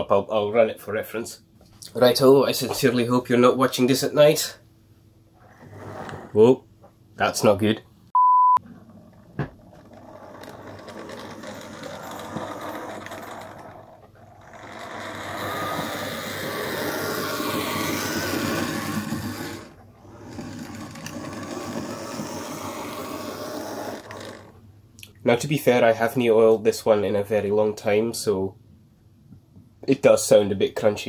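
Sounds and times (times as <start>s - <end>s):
loud beep tone: 8.2s - 8.6s
model locomotive running on track: 14.5s - 19.7s.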